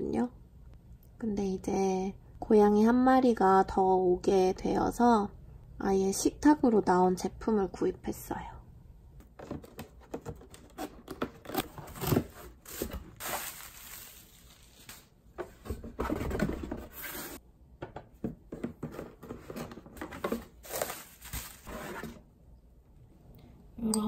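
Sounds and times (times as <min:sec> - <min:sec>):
cardboard scraping and rustling: 0:09.4 - 0:17.4, 0:18.8 - 0:22.2
bubble wrap crinkling: 0:11.4 - 0:15.3, 0:20.6 - 0:21.7.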